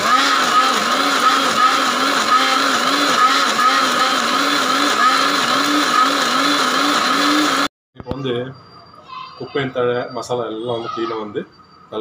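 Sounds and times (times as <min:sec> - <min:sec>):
mixer grinder motor whine: 0:00.0 - 0:07.7.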